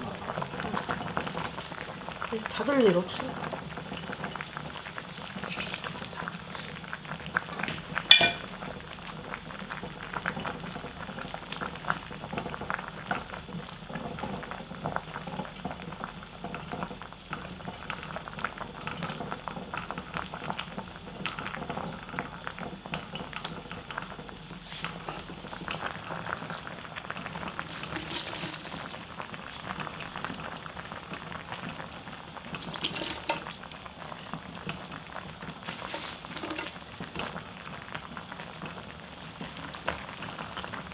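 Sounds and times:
stew bubbling in a pot: 0:00.0 - 0:40.9
metal clink: 0:07.6 - 0:08.5.

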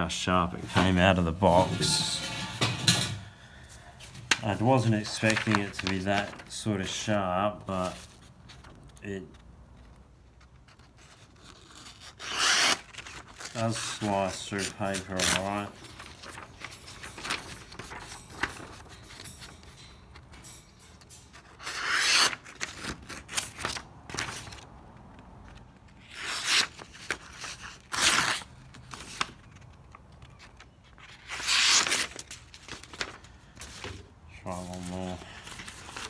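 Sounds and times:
paper rustling: 0:04.0 - 0:20.3, 0:21.0 - 0:36.0
knife slicing paper: 0:11.3 - 0:18.0, 0:21.6 - 0:23.8.

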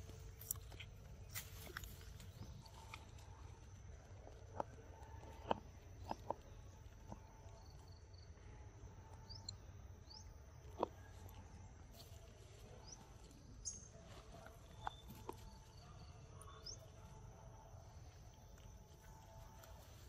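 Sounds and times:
insect drone: 0:00.0 - 0:20.0
bird chirps: 0:12.8 - 0:17.0.

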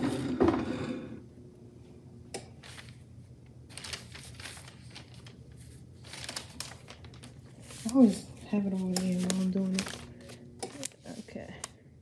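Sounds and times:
rustling handling noise: 0:02.6 - 0:03.1, 0:03.7 - 0:11.6.

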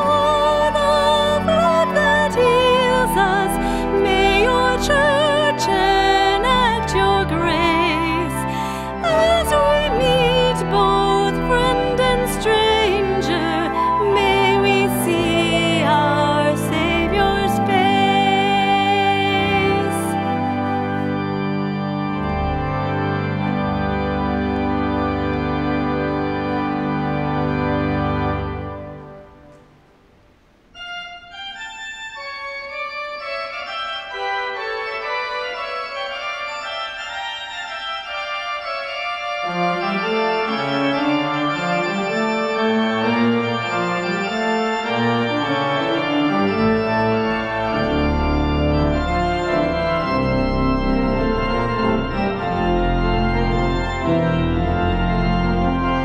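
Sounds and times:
organ music: 0:00.0 - 0:56.0.

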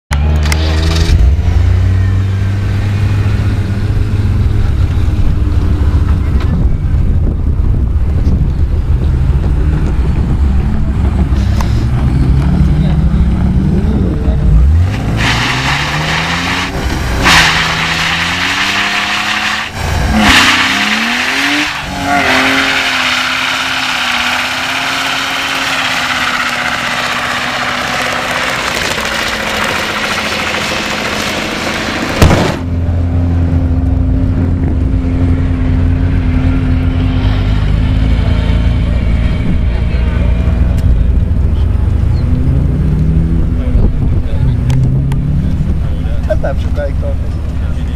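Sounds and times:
car engine revving hard: 0:11.3 - 0:32.6
tyres spinning on asphalt: 0:12.8 - 0:32.8
sharp bang: 0:32.1 - 0:32.8.

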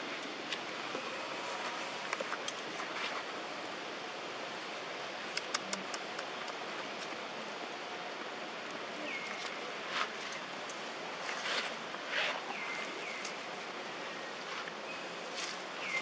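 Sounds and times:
outdoor background hiss: 0:00.0 - 0:16.0
faint clicks: 0:05.3 - 0:07.1.

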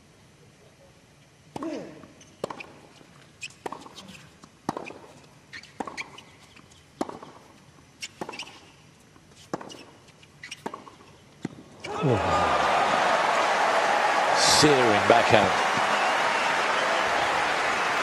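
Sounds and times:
shoes squeaking on court: 0:01.6 - 0:12.0
tennis ball bounces: 0:03.5 - 0:04.0, 0:04.6 - 0:06.2, 0:07.0 - 0:08.7, 0:09.5 - 0:11.7.

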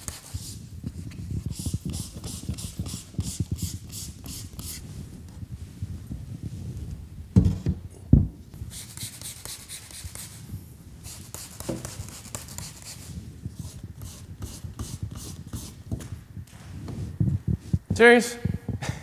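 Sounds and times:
sandpaper rubbing back and forth: 0:00.0 - 0:04.9, 0:08.7 - 0:15.8.

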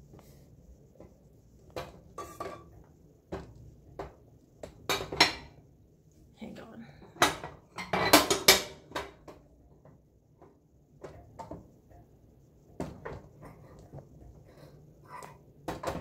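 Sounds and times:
objects knocking on kitchen counter: 0:01.7 - 0:02.7, 0:03.3 - 0:05.6, 0:07.2 - 0:11.7, 0:12.8 - 0:13.7, 0:15.6 - 0:16.0.

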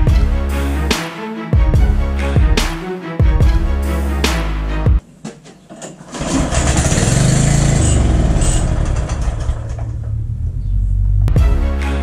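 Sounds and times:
small engine starting and running: 0:06.1 - 0:10.5.

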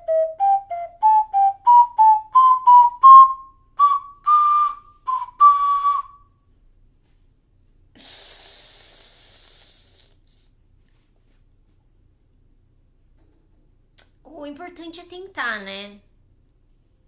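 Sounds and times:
ocarina notes: 0:00.0 - 0:06.3
breathy hiss: 0:07.9 - 0:10.6.

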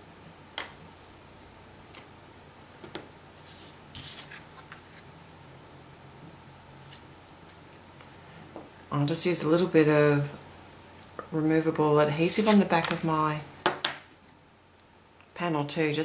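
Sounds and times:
plastic sheet rustling: 0:03.4 - 0:05.0.

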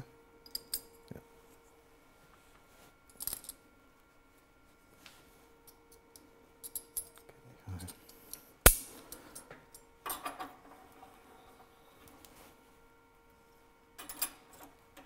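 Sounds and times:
faint steady hum: 0:00.0 - 0:15.0
metal parts clinking: 0:03.1 - 0:03.6, 0:14.0 - 0:14.6.

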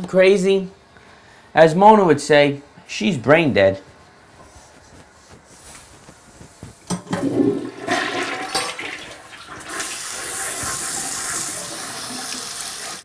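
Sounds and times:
toilet flush click: 0:07.0 - 0:13.0
toilet water rushing: 0:07.0 - 0:13.0.

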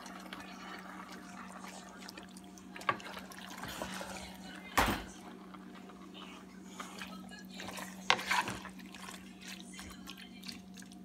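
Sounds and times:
spatula stirring creamy pasta: 0:00.0 - 0:11.0.

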